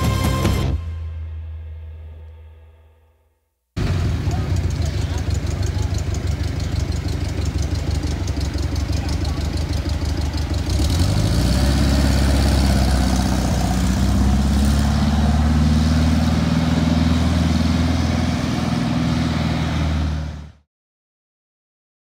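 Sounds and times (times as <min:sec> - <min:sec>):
car engine driving off: 0:03.8 - 0:20.6.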